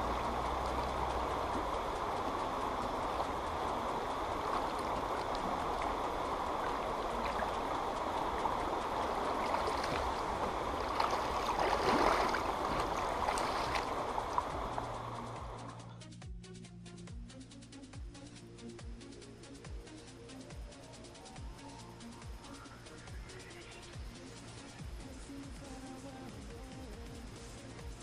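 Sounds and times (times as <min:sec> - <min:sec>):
river flowing and gurgling: 0:00.0 - 0:15.9, 0:18.2 - 0:28.0
hands splashing in water: 0:04.4 - 0:14.9.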